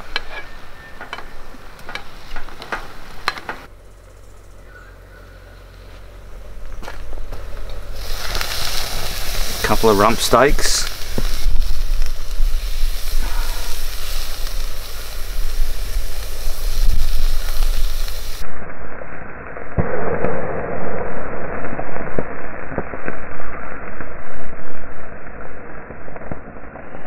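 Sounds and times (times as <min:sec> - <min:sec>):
steaks sizzling over fire: 0:00.0 - 0:04.7, 0:05.6 - 0:18.5
fat spitting and crackling: 0:07.3 - 0:18.4.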